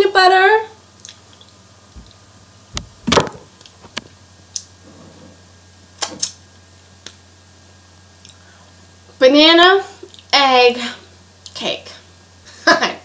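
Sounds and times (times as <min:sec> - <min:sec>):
dull thud: 0:02.0 - 0:03.5.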